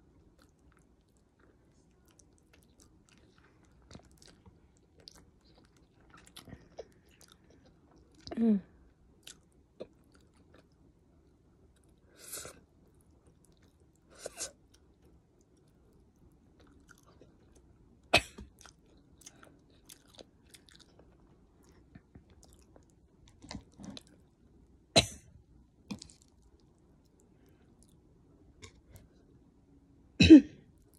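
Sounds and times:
person chewing: 0.2s - 8.3s, 9.2s - 10.8s, 16.6s - 17.7s, 18.5s - 24.3s, 25.9s - 28.0s.

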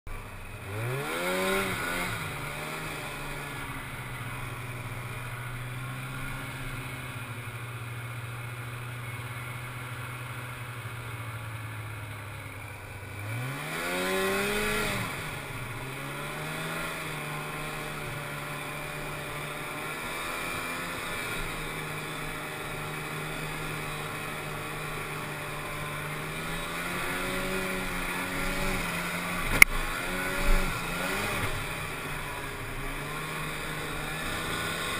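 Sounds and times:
snowmobile engine revving: 0.1s - 34.9s.

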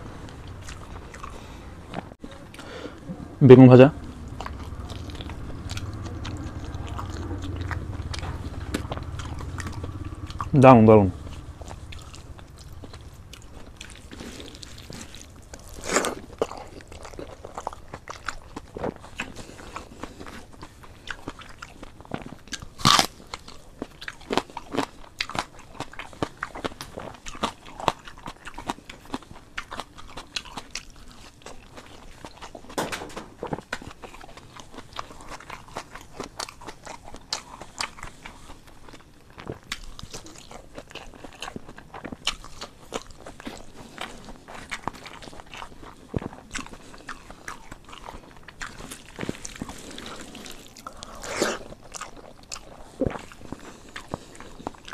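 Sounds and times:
person chewing: 0.0s - 3.2s, 3.8s - 54.9s
crunchy bites of fried food: 11.4s - 54.9s.

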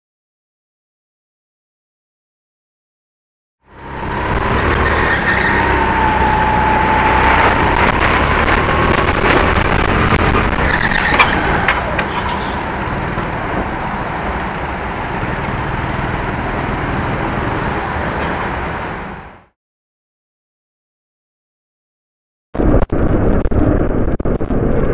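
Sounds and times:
kart engine whining: 3.7s - 18.6s.

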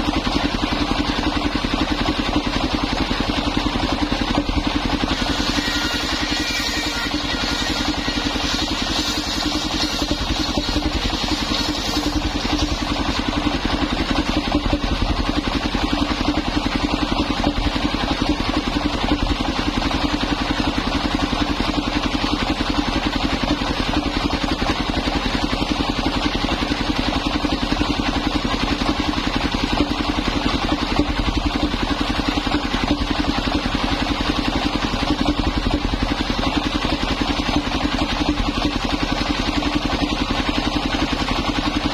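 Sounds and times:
sawmill engine running: 0.0s - 41.9s
circular saw ripping timber: 4.4s - 15.7s
saw blade ringing: 5.2s - 12.0s.

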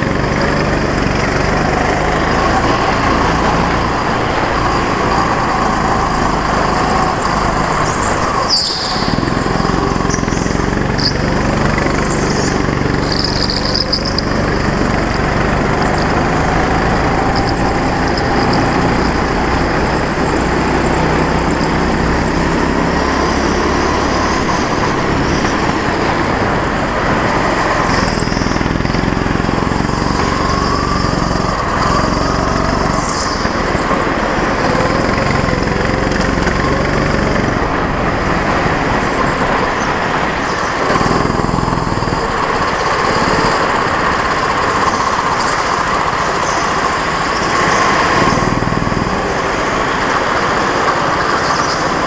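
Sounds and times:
go-kart engine running: 0.0s - 52.0s.

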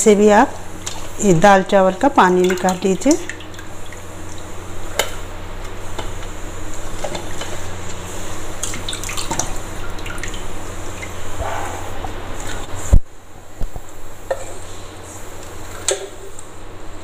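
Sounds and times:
water dripping and splashing: 0.8s - 1.4s, 2.2s - 11.3s.

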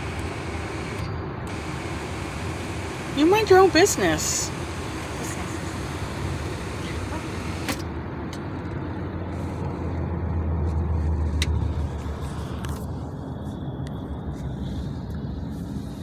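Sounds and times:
car road and engine rumble: 0.0s - 16.0s.

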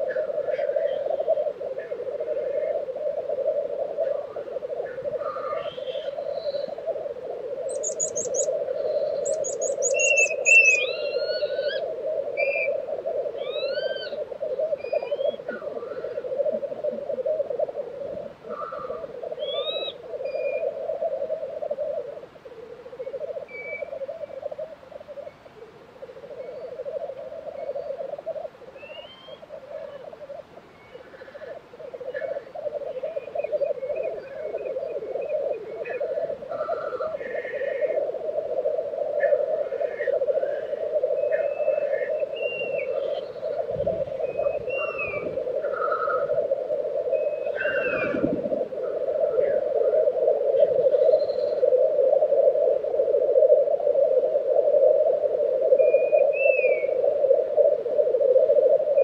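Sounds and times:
grouse bubbling call: 0.0s - 59.0s
bird trills and whistles: 7.7s - 8.5s, 9.2s - 11.8s, 12.4s - 12.7s, 19.4s - 20.6s, 23.5s - 24.0s, 28.8s - 30.0s, 41.2s - 45.3s, 47.1s - 48.3s, 55.8s - 57.0s.

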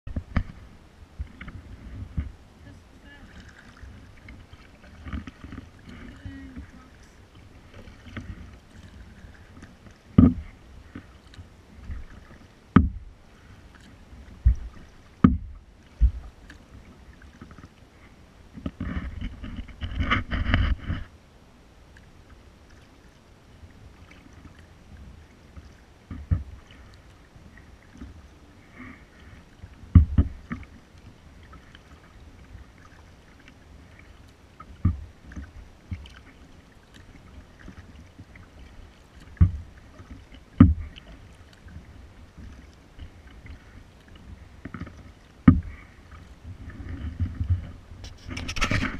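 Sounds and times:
faint water sounds: 0.1s - 48.9s
paddle knocking on kayak: 10.0s - 11.2s, 11.8s - 13.1s, 14.3s - 16.6s, 25.6s - 26.6s, 29.9s - 30.7s, 39.2s - 41.1s, 44.6s - 47.8s.

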